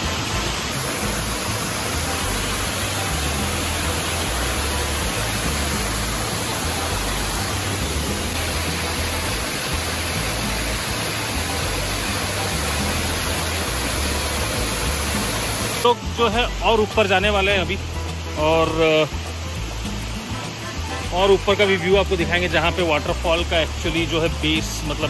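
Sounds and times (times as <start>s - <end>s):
waterfall roaring: 0.0s - 17.8s.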